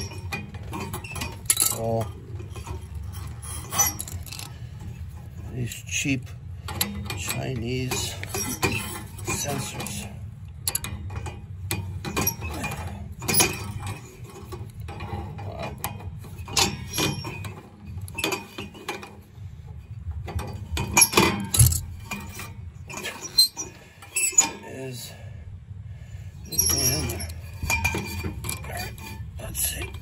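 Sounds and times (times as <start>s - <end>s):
pliers clinking and scraping on metal: 0.0s - 4.6s, 20.4s - 23.6s, 26.5s - 30.0s.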